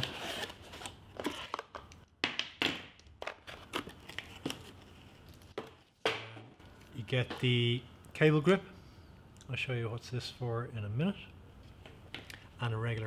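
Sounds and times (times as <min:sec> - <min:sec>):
cardboard rustling and crinkling: 0:03.3 - 0:06.0.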